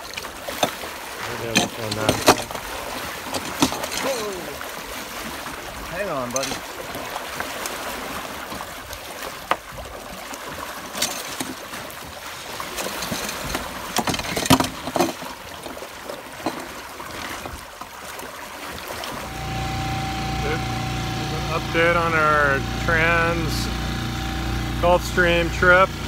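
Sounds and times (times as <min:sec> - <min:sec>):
outboard motor hum: 0:00.0 - 0:26.0
water rushing past boat: 0:00.0 - 0:26.0
fishing tackle knocks and clicks: 0:01.4 - 0:04.1, 0:06.3 - 0:06.7, 0:12.8 - 0:15.8.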